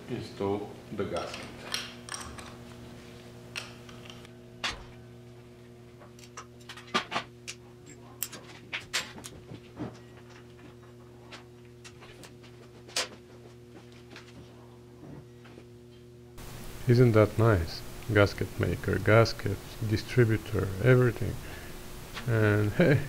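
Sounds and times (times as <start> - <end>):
steady low hum: 0.0 - 23.0
metal parts clicking and clinking: 1.2 - 2.6, 6.2 - 9.4.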